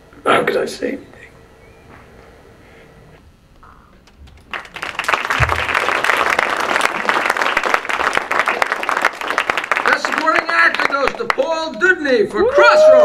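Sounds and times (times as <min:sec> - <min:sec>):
audience applauding: 0:04.2 - 0:11.9.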